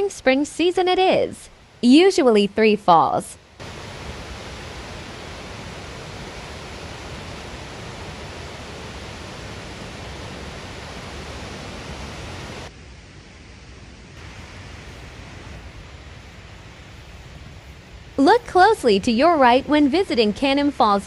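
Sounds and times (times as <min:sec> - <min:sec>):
waterfall roaring: 0:03.6 - 0:12.7, 0:13.4 - 0:21.0.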